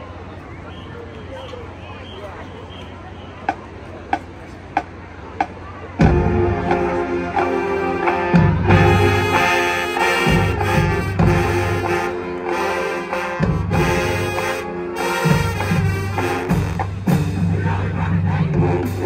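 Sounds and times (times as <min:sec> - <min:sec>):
marching band brass chords: 0:01.4 - 0:19.0.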